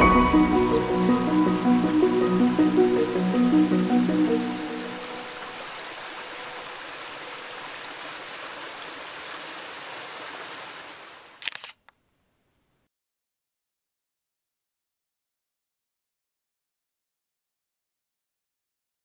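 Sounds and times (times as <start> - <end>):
background piano music: 0.0 - 5.6
steady outdoor hiss: 0.0 - 12.8
camera shutter clicks: 11.4 - 12.0.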